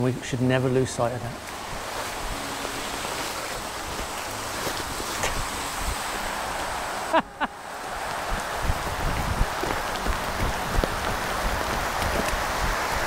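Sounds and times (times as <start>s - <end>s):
heavy rain falling: 1.4s - 13.0s.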